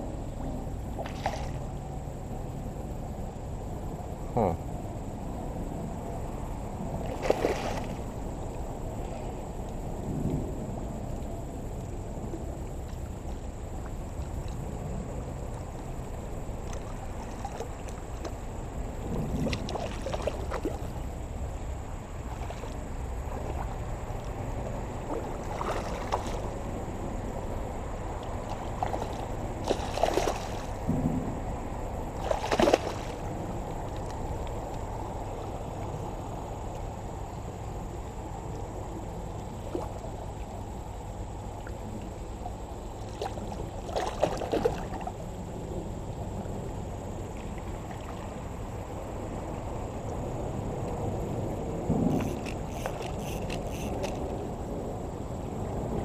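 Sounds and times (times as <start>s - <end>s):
rush of moving water: 0.0s - 56.0s
fish thrashing and splashing: 7.1s - 8.0s, 25.2s - 26.6s, 28.5s - 30.8s, 32.2s - 33.3s.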